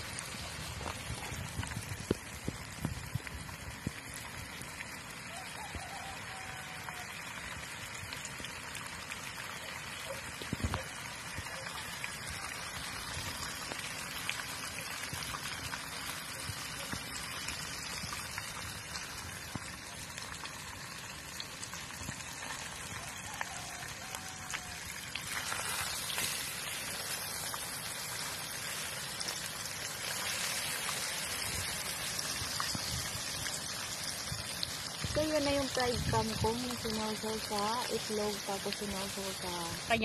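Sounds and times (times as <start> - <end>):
vegetables sizzling in hot oil: 0.0 - 40.0.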